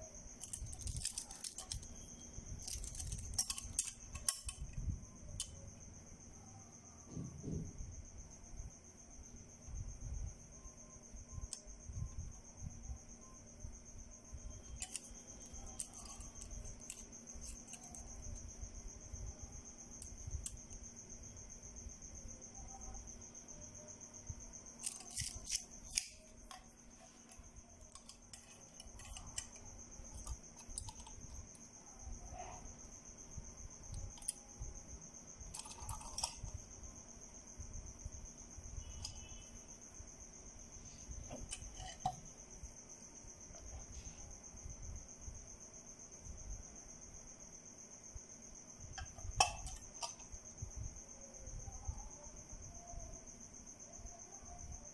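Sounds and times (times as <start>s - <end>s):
cricket trilling: 0.0s - 54.9s
metal brackets clicking: 0.4s - 2.0s, 2.6s - 4.8s, 14.8s - 15.1s, 35.5s - 36.5s.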